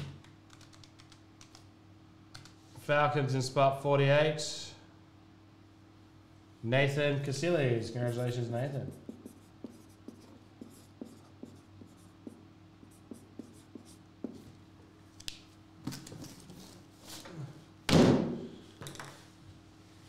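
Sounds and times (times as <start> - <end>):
marker scratching on cardboard: 8.9 - 14.5.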